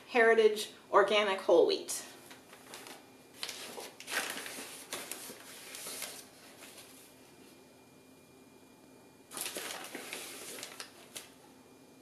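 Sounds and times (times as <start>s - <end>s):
paper bag rustling and crinkling: 2.2s - 7.1s, 9.3s - 11.3s.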